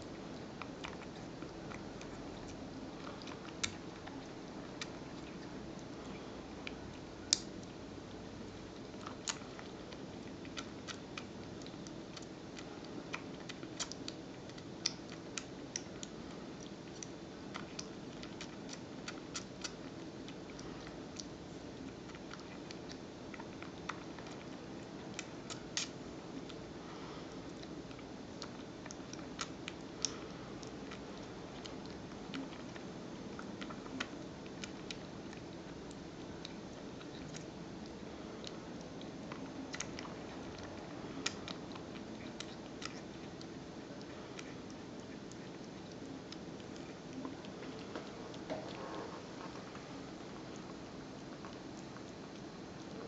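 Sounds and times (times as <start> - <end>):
kitten suckling clicks and smacks: 0.0 - 26.8, 27.4 - 53.0
low background hum: 0.0 - 53.0.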